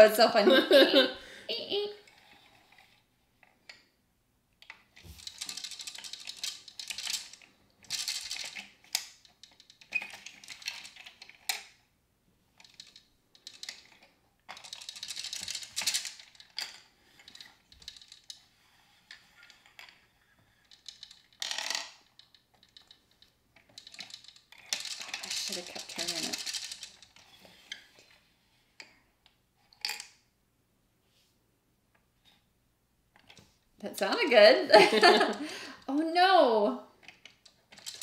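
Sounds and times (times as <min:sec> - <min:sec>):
plastic gears clicking: 0:04.6 - 0:11.8, 0:12.6 - 0:18.4, 0:19.1 - 0:27.8, 0:37.0 - 0:38.0
plastic tokens rattling: 0:04.6 - 0:11.8, 0:12.6 - 0:18.4, 0:19.4 - 0:27.2, 0:34.1 - 0:36.4, 0:37.0 - 0:38.0.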